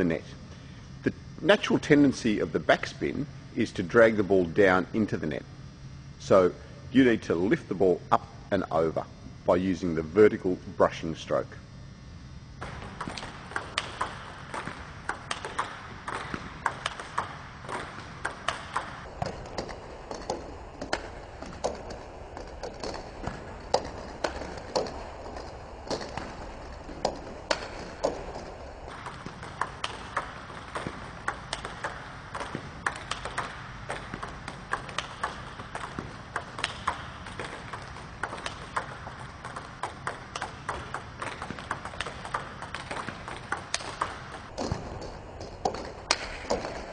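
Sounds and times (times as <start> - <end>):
table tennis balls bouncing on table: 12.6 - 46.9.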